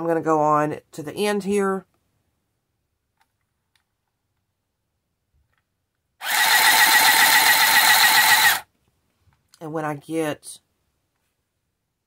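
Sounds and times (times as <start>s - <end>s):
needle strokes pulsing: 6.2s - 8.6s
handheld sewing machine buzzing: 6.2s - 8.7s.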